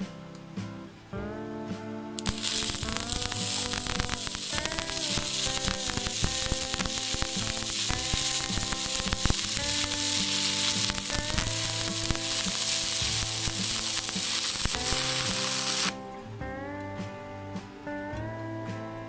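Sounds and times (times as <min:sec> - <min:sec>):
guitar music: 0:00.0 - 0:19.0
welding arc crackling sizzle: 0:02.2 - 0:16.0.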